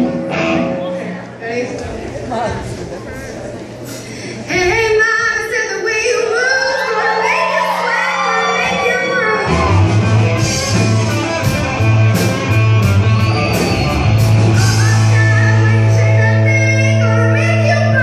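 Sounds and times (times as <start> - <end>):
electric guitar riff: 0.0 - 0.9, 8.2 - 18.0
rock band playing: 0.0 - 0.9, 7.0 - 18.0
woman singing: 14.6 - 18.0.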